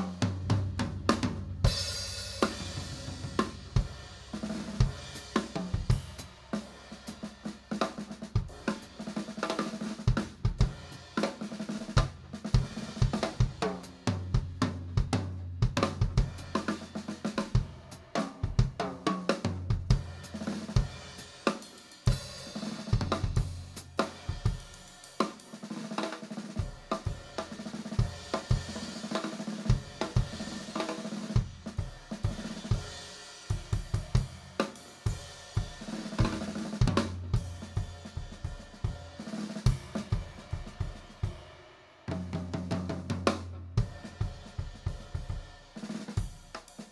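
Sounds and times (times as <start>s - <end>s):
drum kit: 0.0s - 46.9s.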